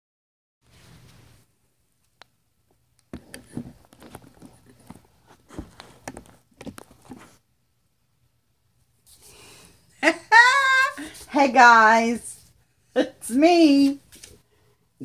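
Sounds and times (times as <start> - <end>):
microphone handling knocks and rustles: 3.1 - 7.4.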